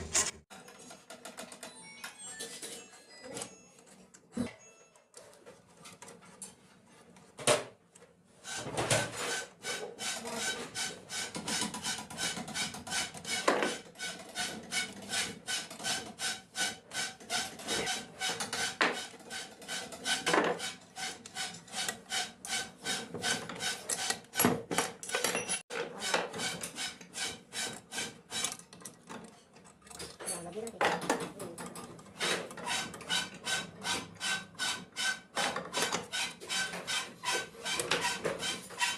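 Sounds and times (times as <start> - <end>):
screwdriver scraping metal: 0.0 - 0.8, 8.5 - 24.5, 25.1 - 30.7, 31.7 - 38.9.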